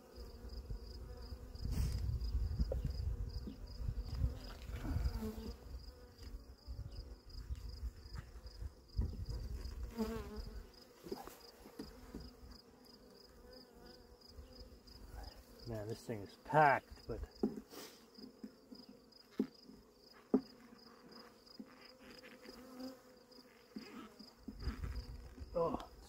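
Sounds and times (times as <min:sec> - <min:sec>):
bees buzzing: 0:00.0 - 0:07.3, 0:09.4 - 0:15.7, 0:20.6 - 0:25.4
bee flying past microphone: 0:00.1 - 0:07.3, 0:08.5 - 0:14.8.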